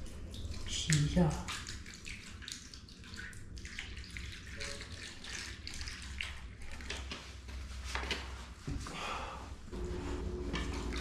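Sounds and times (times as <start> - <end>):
water pouring into metal pan: 0.0 - 6.9.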